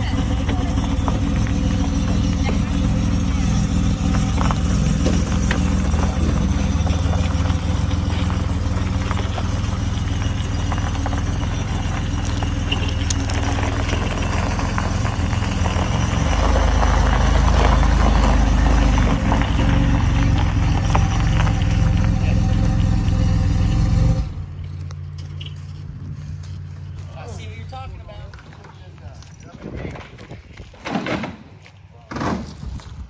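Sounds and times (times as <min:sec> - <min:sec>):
car engine idling: 0:00.0 - 0:28.2
tyres on gravel: 0:00.0 - 0:33.0.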